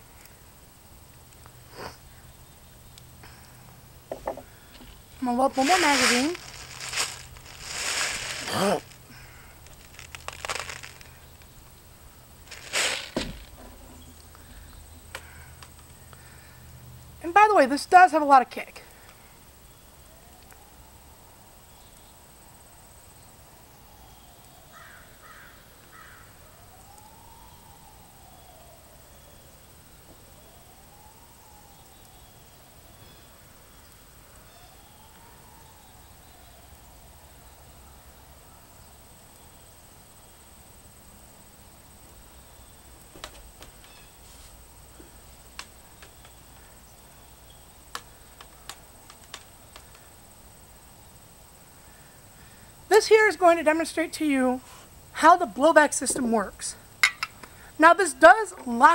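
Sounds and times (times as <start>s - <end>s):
high insect trill: 0.0s - 58.9s
short calls: 3.3s - 11.7s
distant emergency siren wailing: 19.2s - 22.5s, 23.4s - 38.2s.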